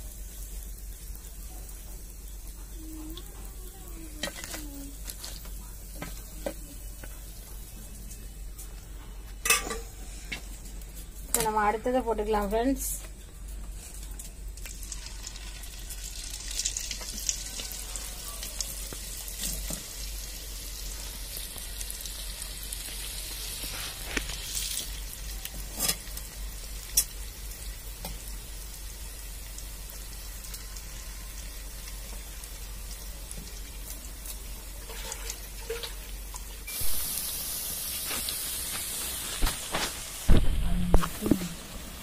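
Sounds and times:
florets sizzling in hot oil: 0:00.0 - 0:42.0.

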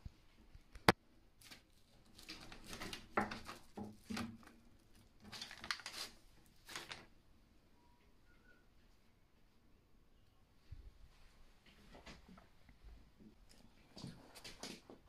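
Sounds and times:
paper crinkling and rustling: 0:01.4 - 0:07.1.

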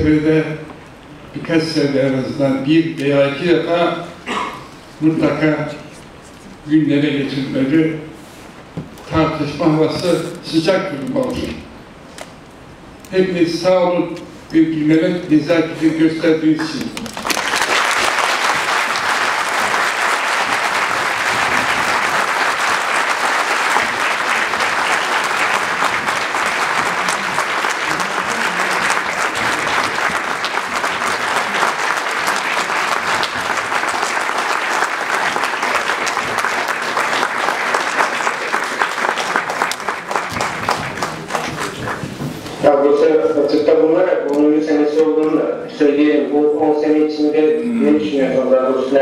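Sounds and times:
audience applauding: 0:16.6 - 0:42.2.

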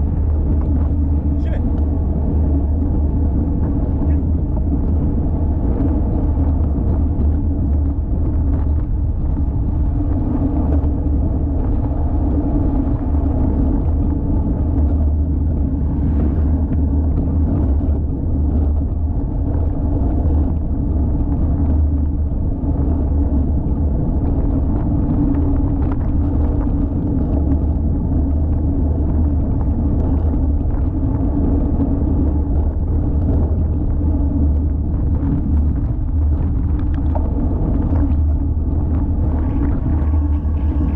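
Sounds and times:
road and tyre noise: 0:00.0 - 0:40.9
wind rumble on microphone: 0:00.0 - 0:40.9.

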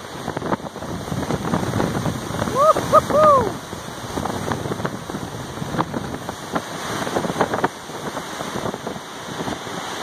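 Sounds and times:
hurricane wind: 0:00.0 - 0:10.0
rain: 0:00.0 - 0:10.0
wind buffeting microphone: 0:00.0 - 0:10.0.

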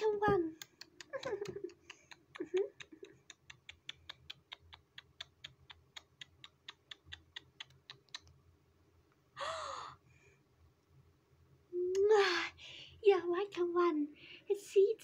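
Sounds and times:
breathy sigh: 0:09.4 - 0:10.0.

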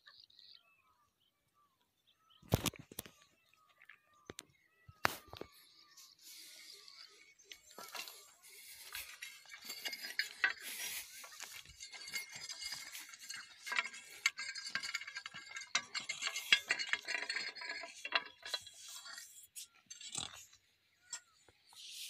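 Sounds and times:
dry grass and leaves crackling: 0:05.0 - 0:18.9.

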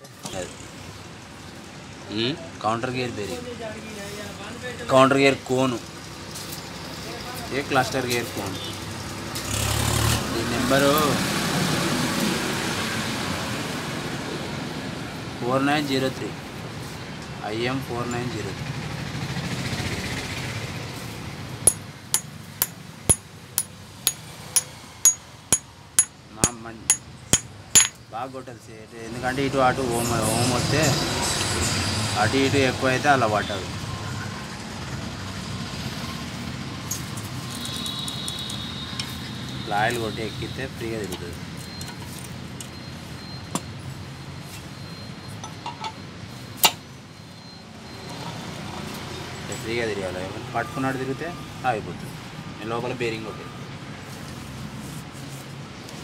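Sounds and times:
hammer striking metal with ringing: 0:21.7 - 0:28.0.

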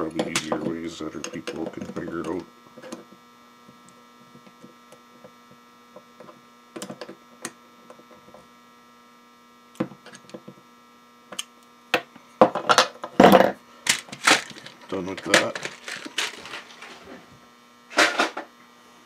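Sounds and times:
electrical mains hum: 0:00.0 - 0:19.0.

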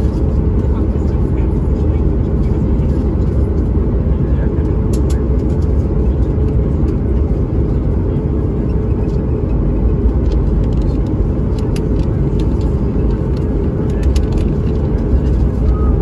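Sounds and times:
aircraft cabin rumble: 0:00.0 - 0:16.0
faint clicks and rattles: 0:10.0 - 0:15.8.

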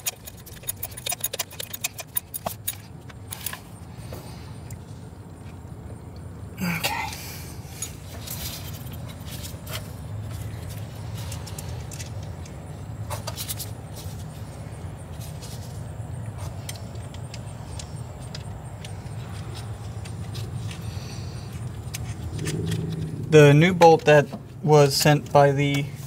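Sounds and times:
metallic clicks of hand tools: 0:00.0 - 0:03.6
steady low hum: 0:00.0 - 0:26.0.

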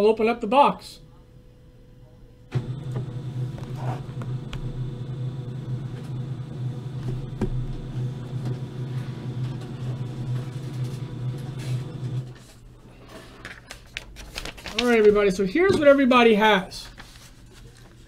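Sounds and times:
printer humming: 0:02.5 - 0:13.2.

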